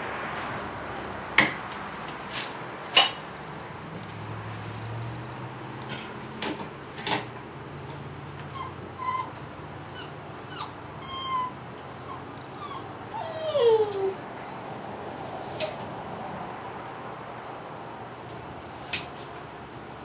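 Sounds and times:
puppies whimpering: 8.3s - 14.2s.

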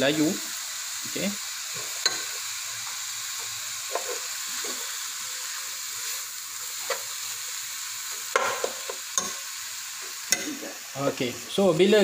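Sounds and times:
vegetables sizzling in oil: 0.0s - 12.0s
metal spoon clinking and scraping: 1.8s - 2.4s, 3.9s - 4.9s, 8.3s - 9.4s.

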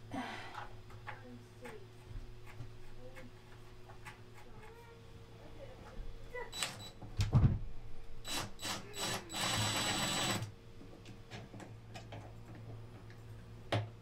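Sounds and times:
cordless drill running: 8.3s - 10.5s
drill clicks: 8.3s - 10.5s.

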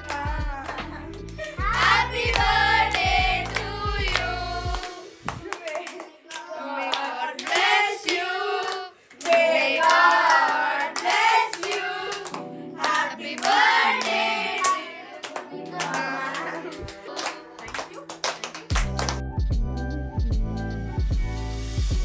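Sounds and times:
hand claps: 0.0s - 19.3s
group singing: 1.6s - 5.3s, 6.3s - 17.4s.

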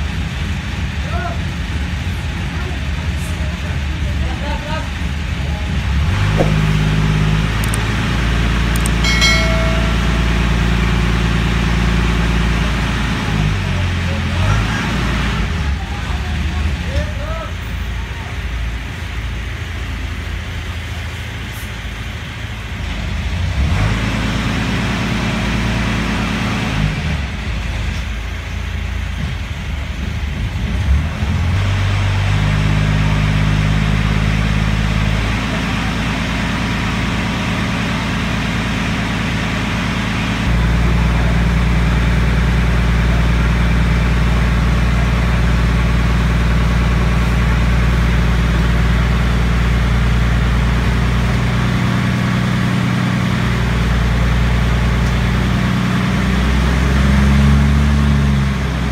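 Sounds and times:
boat engine running: 5.9s - 13.2s.

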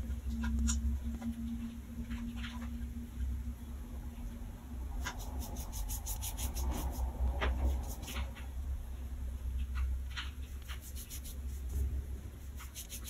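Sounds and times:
cat's paws scratching tiled floor: 5.0s - 8.5s, 10.2s - 13.0s.

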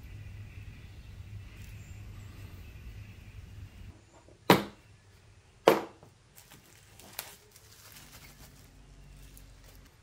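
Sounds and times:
faint low hum: 0.0s - 5.6s.

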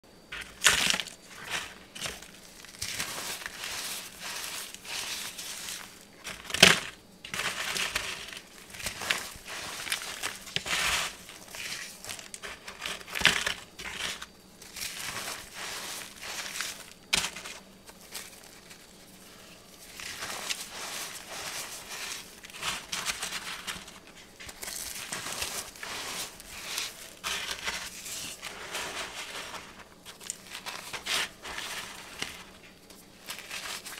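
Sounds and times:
cornstarch shapes crushed by fingers: 0.4s - 18.8s.

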